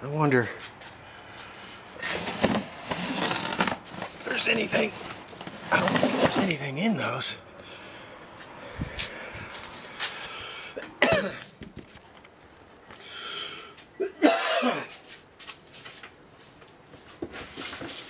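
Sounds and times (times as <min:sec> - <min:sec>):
man coughing: 0:10.7 - 0:11.5, 0:14.0 - 0:15.0.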